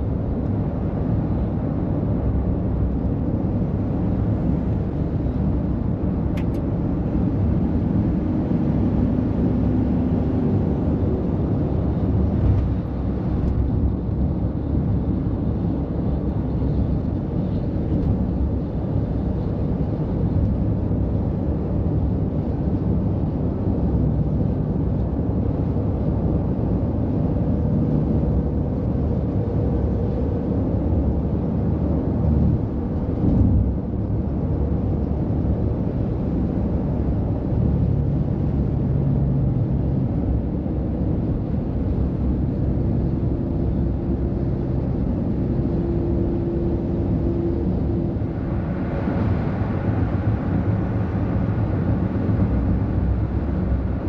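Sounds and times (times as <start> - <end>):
heavy diesel trucks passing: 25.4 - 54.0.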